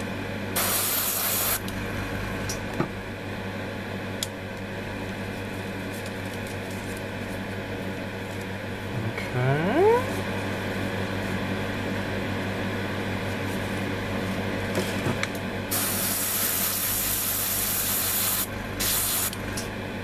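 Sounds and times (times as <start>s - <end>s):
steady hum: 0.0s - 20.0s
airbrush spraying hiss: 0.6s - 1.6s, 15.7s - 19.4s.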